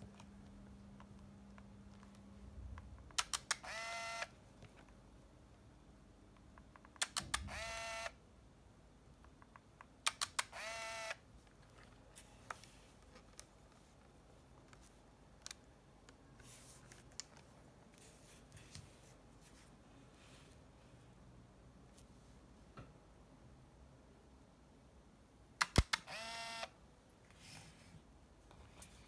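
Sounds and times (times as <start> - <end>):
camera motor whirring: 3.5 - 4.3, 7.4 - 8.1, 10.4 - 11.2, 25.8 - 26.7
camera shutter clicks: 7.0 - 8.1, 25.6 - 26.7.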